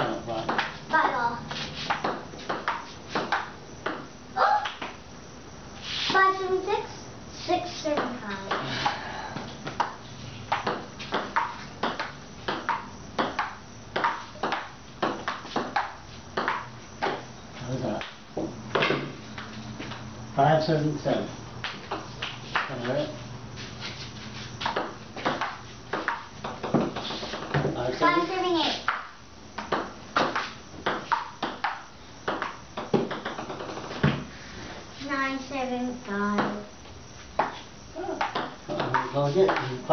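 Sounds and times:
table tennis ball hits: 0.4s - 5.0s, 9.7s - 17.3s, 18.0s - 19.2s, 24.6s - 27.8s, 28.8s - 34.3s, 38.2s - 39.8s.

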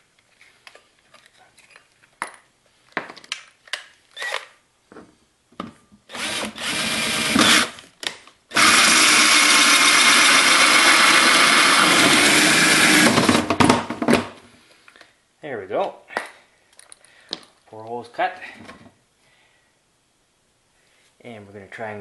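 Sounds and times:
power drill cutting plastic: 6.1s - 7.8s, 8.5s - 13.5s.

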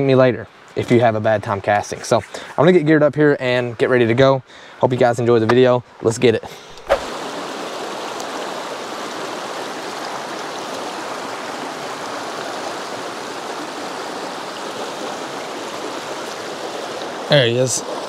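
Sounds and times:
river running over rocks: 6.7s - 18.0s.

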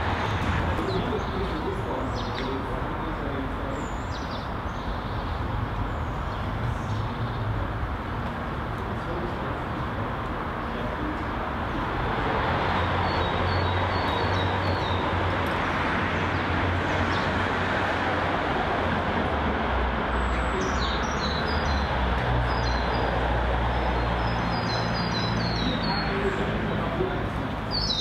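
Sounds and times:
rushing background noise: 0.0s - 28.0s
bird chirps: 27.7s - 28.0s.

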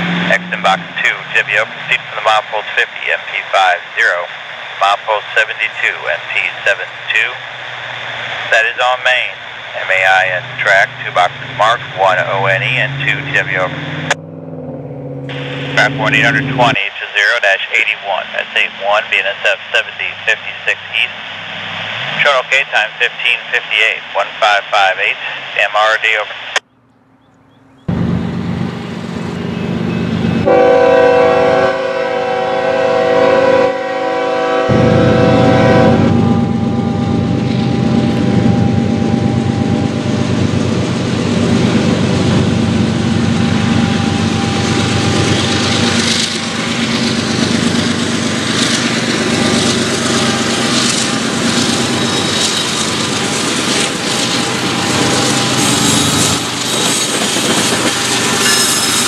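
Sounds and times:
diesel locomotive rumble: 0.0s - 25.7s, 26.6s - 59.0s
locomotive air horn: 30.4s - 36.9s, 54.9s - 59.0s.

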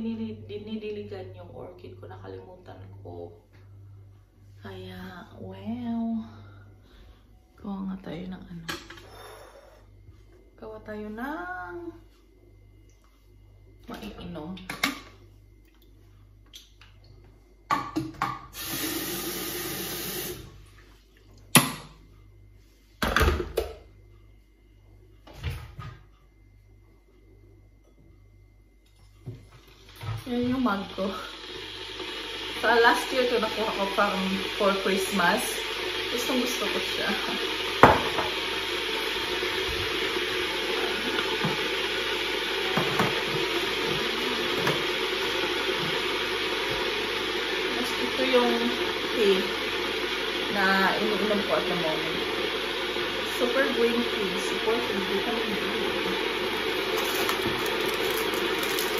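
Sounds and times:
tap water filling kettle: 17.7s - 20.6s, 29.2s - 58.9s
kettle set down with clunk: 37.8s - 38.4s, 42.7s - 44.9s.

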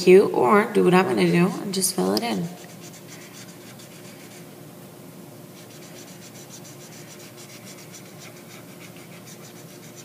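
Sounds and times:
marker scribbling on paper: 2.6s - 4.4s, 5.6s - 10.0s.

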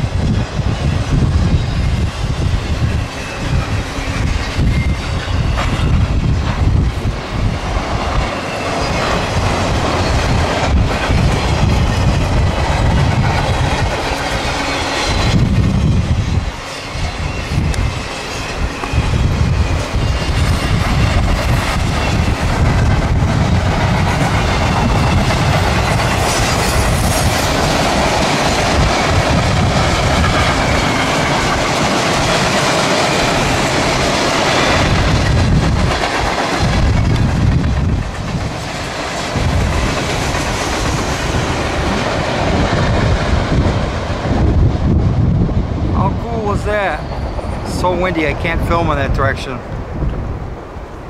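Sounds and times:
freight train rumbling past: 0.0s - 51.0s
wind buffeting microphone: 0.0s - 51.0s
wheels clacking over rail joints: 19.7s - 44.3s.

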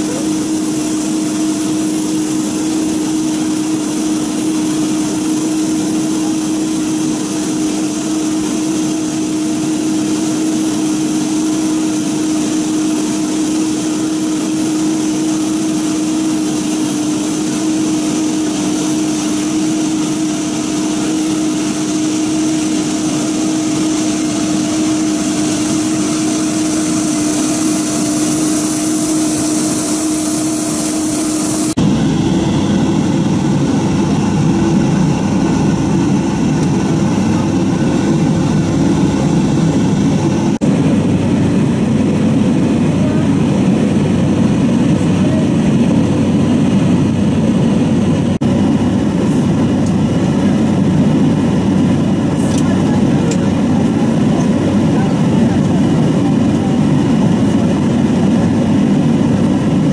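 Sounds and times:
jet engines humming with whine: 0.0s - 59.9s.

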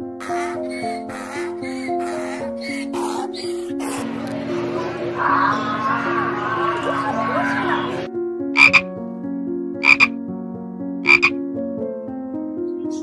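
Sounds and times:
sustained background music: 0.0s - 13.0s
frog croaking: 8.6s - 8.9s, 9.8s - 10.2s, 11.0s - 11.4s.

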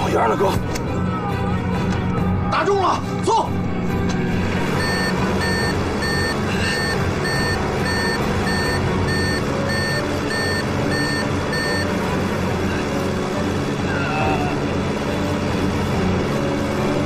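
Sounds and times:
plane engine drone: 3.5s - 17.0s
cockpit warning alarm beeping: 4.8s - 12.0s.

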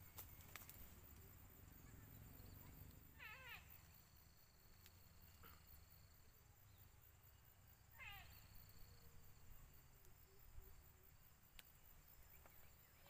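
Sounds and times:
faint bird call: 1.8s - 6.0s, 7.9s - 9.0s.

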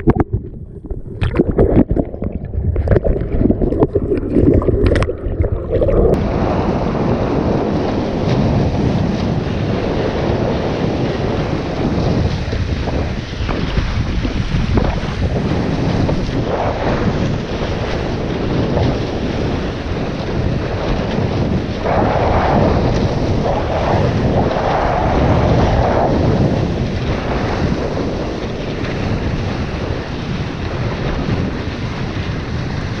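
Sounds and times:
water rushing past board: 0.0s - 9.9s
wind buffeting microphone: 0.0s - 33.0s.

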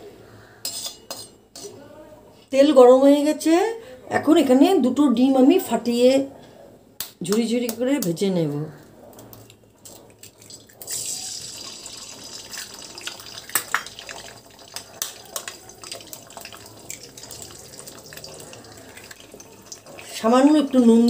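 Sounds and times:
sharp oil crackles: 9.8s - 20.8s
eggs sizzling in hot oil: 10.5s - 21.0s.

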